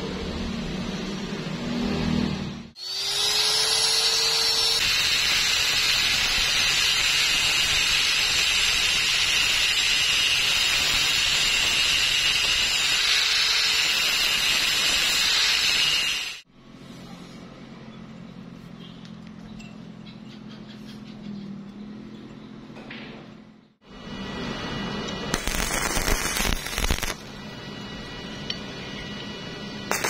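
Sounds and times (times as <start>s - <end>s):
angle grinder whining: 2.8s - 16.5s, 23.9s - 30.0s.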